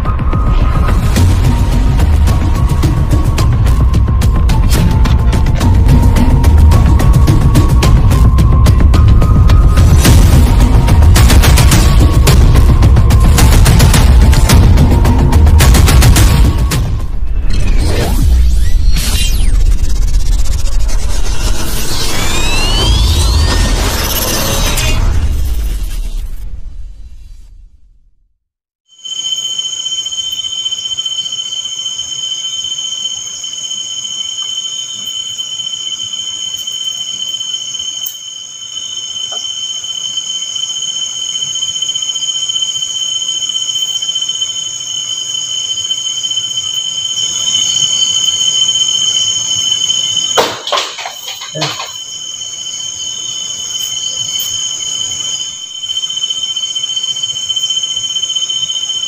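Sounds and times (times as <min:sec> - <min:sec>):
night insects chirring: 0:00.0 - 0:25.2, 0:28.9 - 0:59.0
sharp knocks clattering: 0:50.4 - 0:52.1.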